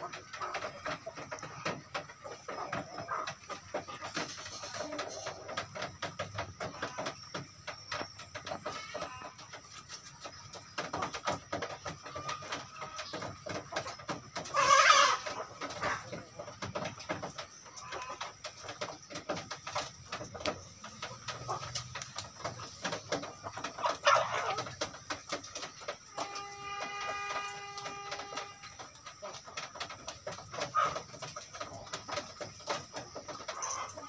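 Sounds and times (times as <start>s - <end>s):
chicken beaks tapping: 0.0s - 34.0s
chickens clucking: 0.0s - 34.0s
chicken squawk: 14.5s - 16.1s, 23.8s - 24.7s.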